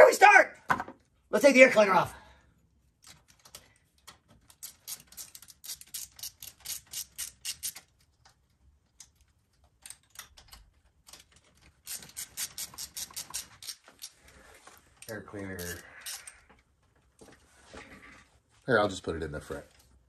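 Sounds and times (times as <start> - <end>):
ratchet wrench clicking: 4.5 - 7.9, 11.8 - 14.2, 15.6 - 16.4.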